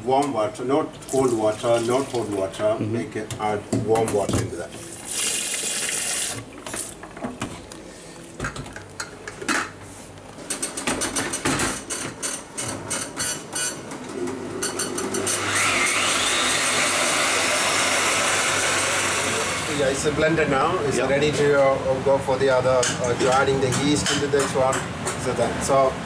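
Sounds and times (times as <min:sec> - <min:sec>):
tap water running: 0:01.0 - 0:02.5, 0:04.8 - 0:07.0
blender motor whining: 0:14.3 - 0:19.8.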